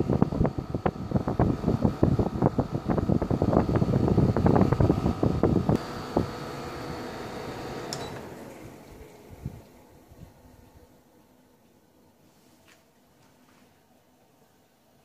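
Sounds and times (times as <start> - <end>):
airflow buffeting microphone: 0.0 - 6.7, 8.6 - 11.0
air conditioner fan running: 0.0 - 15.0
air conditioner click: 7.7 - 9.1.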